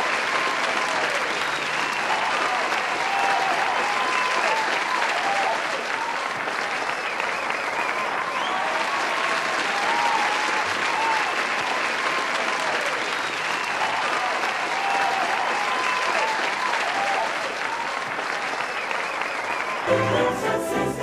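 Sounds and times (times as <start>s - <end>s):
crowd applauding: 0.0s - 21.0s
voices cheering: 0.0s - 21.0s.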